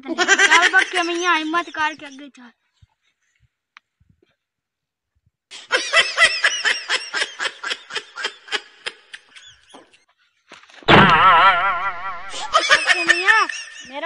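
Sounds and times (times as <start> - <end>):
high-pitched laughter: 10.9 - 14.0.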